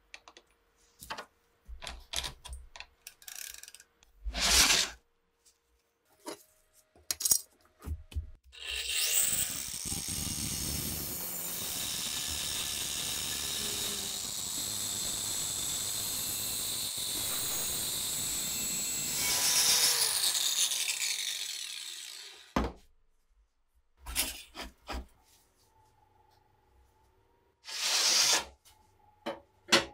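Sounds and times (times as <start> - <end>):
angle grinder grinding steel: 8.6 - 22.6.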